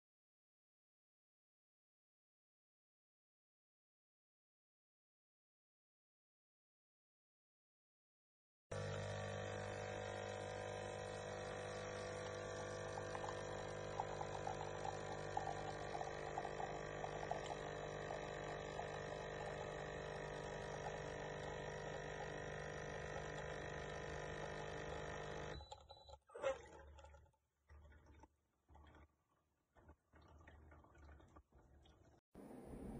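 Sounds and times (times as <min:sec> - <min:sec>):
coffee stream crackling: 0:08.7 - 0:25.6
coffee machine pump humming: 0:08.7 - 0:25.9.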